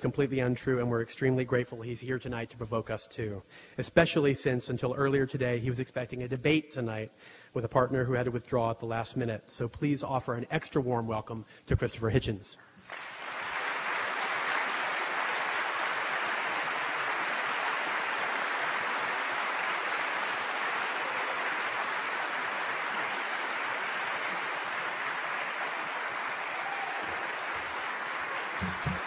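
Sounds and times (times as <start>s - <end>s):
audience applauding: 12.9s - 29.0s.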